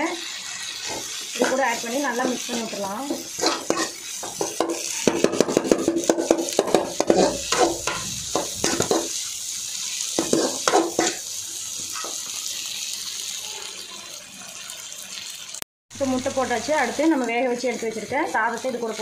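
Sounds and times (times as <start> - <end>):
food sizzling: 0.0 - 19.0
metal spatula scraping a pan: 0.4 - 9.3, 10.1 - 11.2, 11.8 - 12.3.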